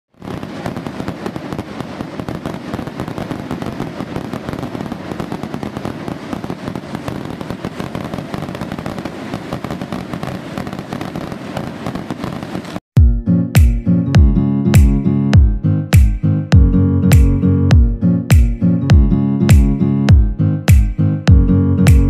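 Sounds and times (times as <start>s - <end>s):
firecrackers crackling: 0.2s - 12.8s.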